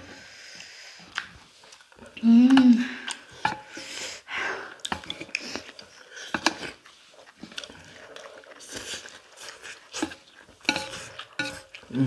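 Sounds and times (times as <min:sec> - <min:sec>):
noodles slurped and chewed: 0:00.2 - 0:12.0
person humming: 0:02.2 - 0:03.1
chopsticks clicking on metal plates: 0:10.0 - 0:11.9.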